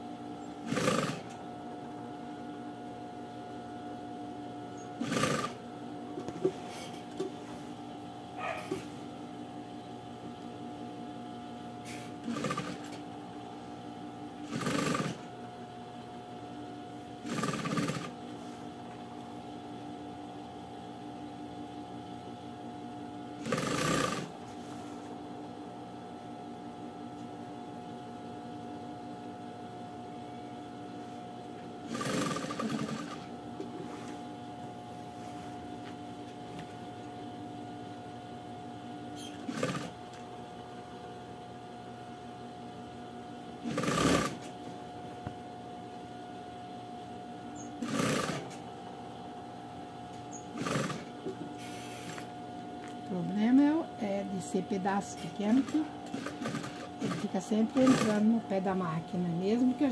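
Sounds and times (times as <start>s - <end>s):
steady hum: 0.0s - 59.9s
sewing machine stitching: 0.7s - 1.3s, 5.0s - 5.6s, 11.9s - 13.0s, 14.4s - 15.2s, 17.2s - 18.2s, 23.4s - 24.3s, 31.9s - 33.3s, 39.3s - 40.0s, 43.6s - 44.5s, 47.8s - 48.6s, 50.4s - 52.2s, 55.6s - 58.2s.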